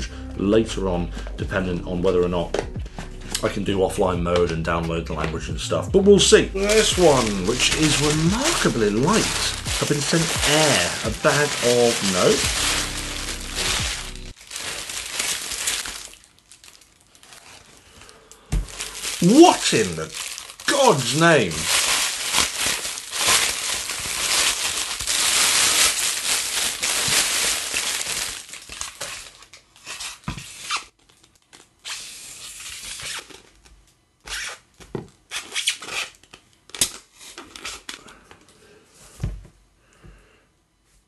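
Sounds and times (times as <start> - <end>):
plastic wrapping crinkling: 6.6 - 33.7.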